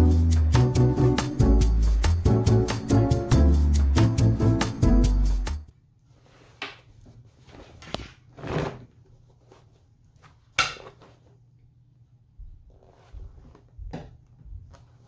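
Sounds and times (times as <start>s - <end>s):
fabric rustling: 6.0s - 11.5s, 12.4s - 13.9s.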